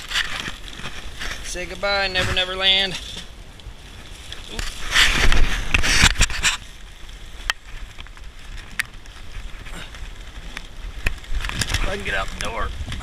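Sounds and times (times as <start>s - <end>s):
rustling against rain gear: 0.0s - 13.0s.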